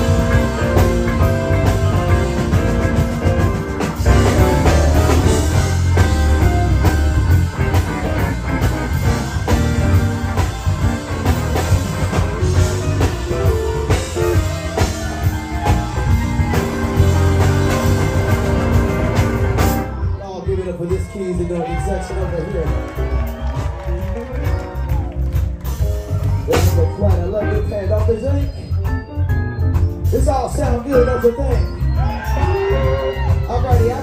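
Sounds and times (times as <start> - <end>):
electric guitar: 0.0 - 20.1
bass line: 0.0 - 34.0
steady drum beat: 0.0 - 34.0.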